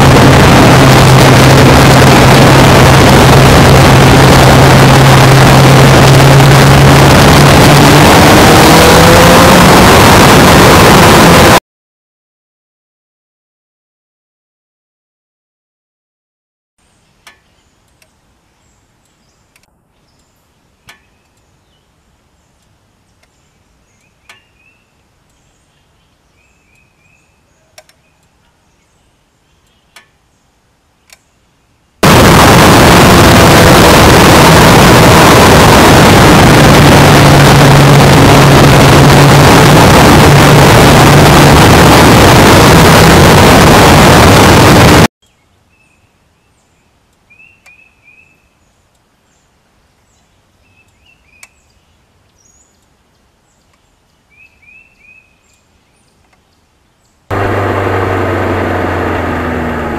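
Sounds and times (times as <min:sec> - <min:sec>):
low motorcycle engine note: 0:00.0 - 0:11.6, 0:32.0 - 0:45.1, 0:57.3 - 0:59.9
faint bird chirps: 0:16.9 - 0:31.8, 0:45.2 - 0:57.2.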